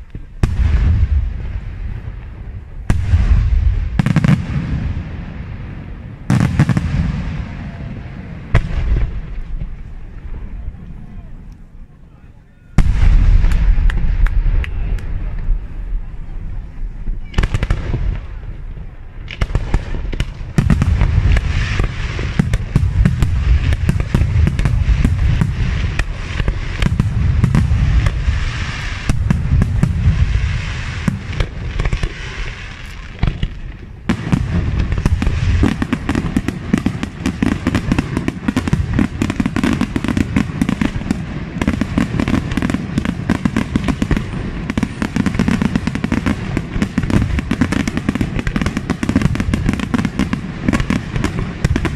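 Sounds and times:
fireworks bangs and crackling: 0.0 - 51.9.

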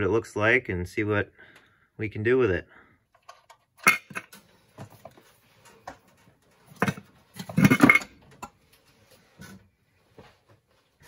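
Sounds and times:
knocks and rattles of metal housing: 5.7 - 8.5.

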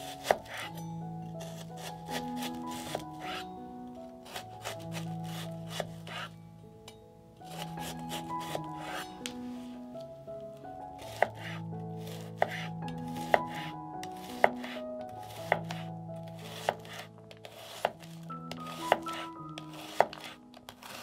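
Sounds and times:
soft background music: 0.0 - 21.0
knife chopping on cutting board: 0.2 - 0.7, 1.8 - 3.4, 4.3 - 6.3, 7.5 - 9.0, 11.0 - 14.8, 15.4 - 15.8, 16.5 - 21.0.

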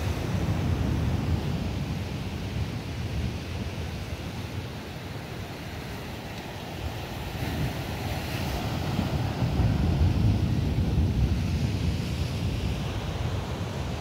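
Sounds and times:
waves breaking on rocky shore: 0.0 - 14.0
wind buffeting microphone: 0.0 - 14.0.

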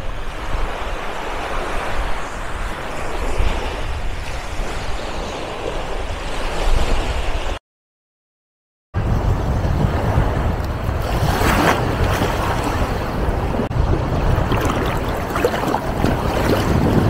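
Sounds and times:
wind rumble on microphone: 0.0 - 7.6, 9.0 - 17.0
surf breaking at water's edge: 9.0 - 17.0.

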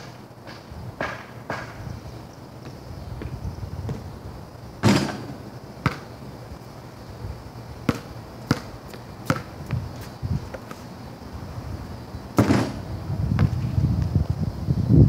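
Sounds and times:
steady low rumble: 0.7 - 15.0
basketball bouncing on concrete: 2.6 - 4.1, 4.8 - 6.4, 7.8 - 10.8, 12.4 - 12.8.

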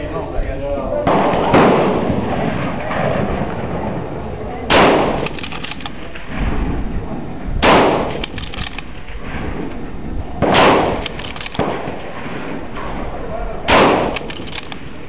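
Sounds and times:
rifle shots: 1.0 - 4.1, 4.7 - 6.8, 7.6 - 9.8, 10.4 - 15.0
rifle bolt clicks: 5.1 - 6.0, 8.0 - 9.0, 11.0 - 11.7, 14.0 - 15.0.

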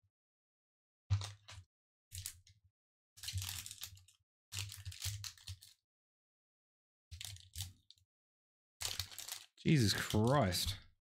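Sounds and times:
foil wrapper crinkling and tearing: 8.8 - 10.4.

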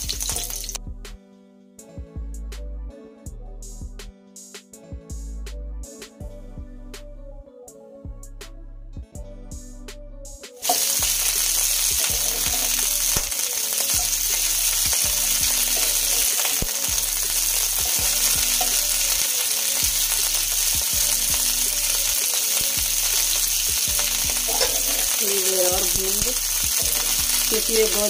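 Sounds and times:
vegetables sizzling in hot oil: 0.0 - 0.8, 10.6 - 28.0.

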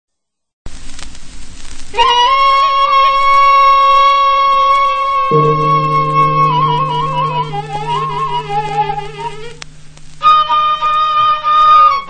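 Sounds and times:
flute-like wind instrument: 2.0 - 9.6
steady low drone: 5.3 - 10.5.

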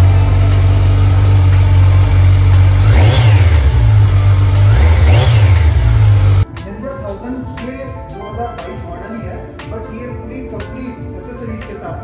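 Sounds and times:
motorcycle engine idling and revving: 0.0 - 6.5.

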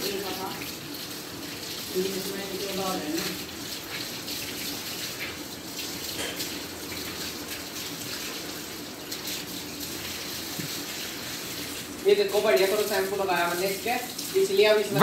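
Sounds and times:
water from hose splashing on concrete: 0.0 - 15.0.

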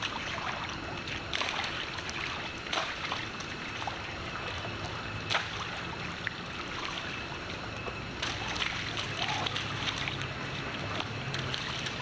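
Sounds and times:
sharp splashes: 0.0 - 4.0, 5.3 - 5.9, 8.2 - 12.0
water sloshing: 0.0 - 12.0.

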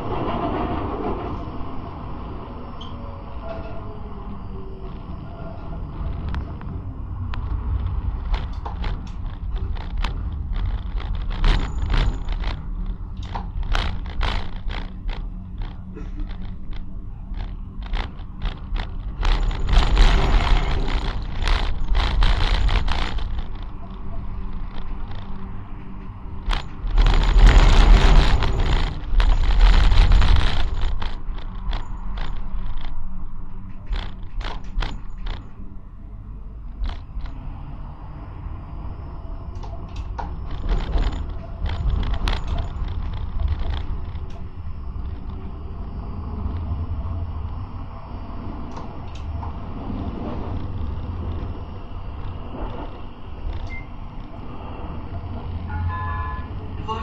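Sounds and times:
tram rumbling along track: 0.0 - 57.0
sharp clicks and knocks: 7.3 - 35.6, 36.7 - 37.4, 39.6 - 47.7, 48.6 - 55.7.

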